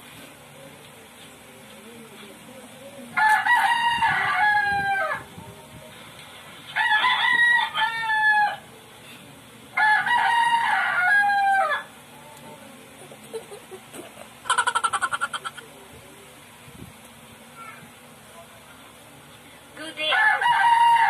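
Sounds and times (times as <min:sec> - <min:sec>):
rooster crowing: 0:03.2 - 0:05.3, 0:06.7 - 0:08.7, 0:09.8 - 0:11.9, 0:20.1 - 0:21.0.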